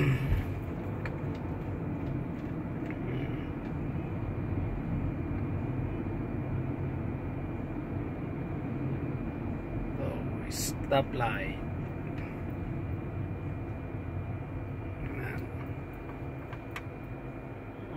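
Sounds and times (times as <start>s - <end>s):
car engine and tyres rumbling: 0.0s - 17.9s.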